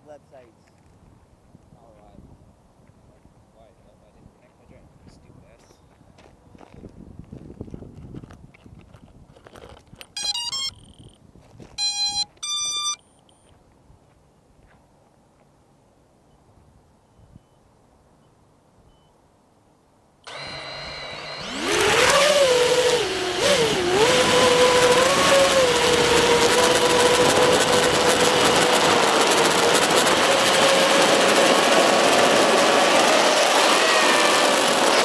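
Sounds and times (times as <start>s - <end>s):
drone motors whining: 20.2s - 35.0s.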